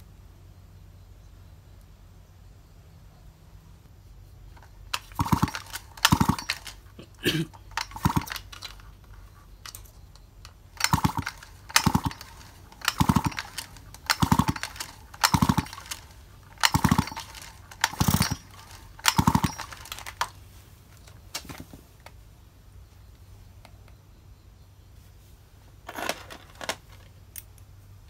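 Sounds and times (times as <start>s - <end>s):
chainsaw recoil starter pulls: 4.6s - 20.4s, 25.9s - 27.1s.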